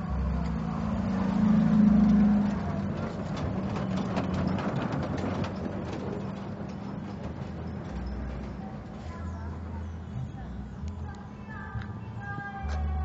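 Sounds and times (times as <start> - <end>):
carriages clicking and knocking: 0.0 - 13.0
road train motor humming: 0.0 - 13.0.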